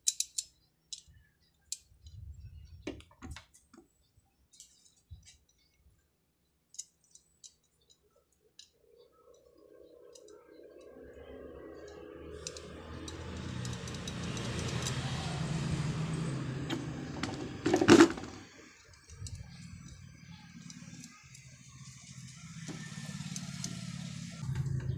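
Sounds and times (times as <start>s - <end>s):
metallic clicks of ground clamp: 0.0s - 1.1s, 6.7s - 9.4s, 10.1s - 10.9s, 11.8s - 15.0s
vehicle engine passing: 10.8s - 24.9s.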